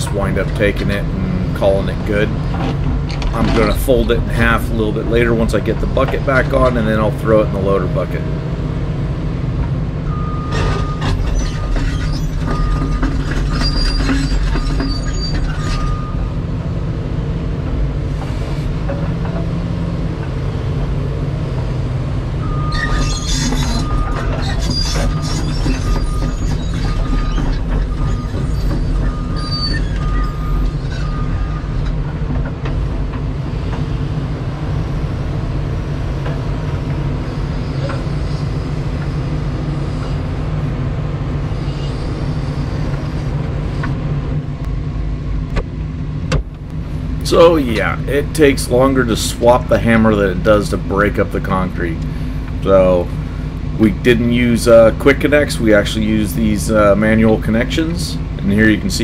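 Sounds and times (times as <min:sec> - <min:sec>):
excavator diesel engine running: 0:00.0 - 0:59.0
metallic squeaks and knocks: 0:00.2 - 0:07.4, 0:10.1 - 0:16.4, 0:22.4 - 0:32.8.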